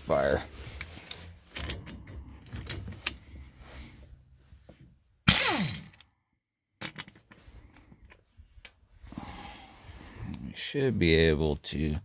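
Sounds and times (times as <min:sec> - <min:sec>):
clicks and clunks of metal parts: 0:00.7 - 0:03.5, 0:06.8 - 0:08.8
air impact wrench burst: 0:05.3 - 0:05.9.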